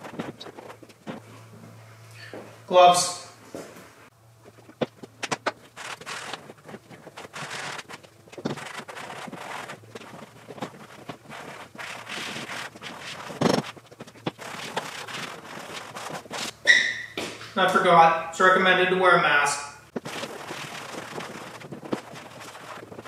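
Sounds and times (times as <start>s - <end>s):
cloth rubbing on plastic: 0.0s - 1.2s, 4.5s - 16.6s, 19.9s - 23.0s.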